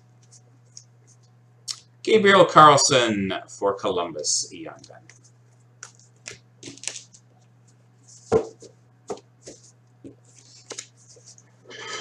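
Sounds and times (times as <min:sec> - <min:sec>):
low electrical hum: 0:00.0 - 0:12.0
cards tapping on tabletop: 0:08.3 - 0:10.8.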